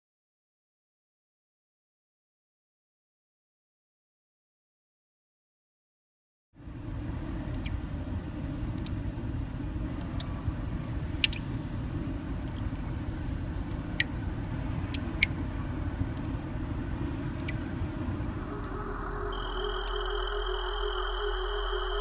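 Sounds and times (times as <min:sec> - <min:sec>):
steady low rumble: 0:06.6 - 0:22.0.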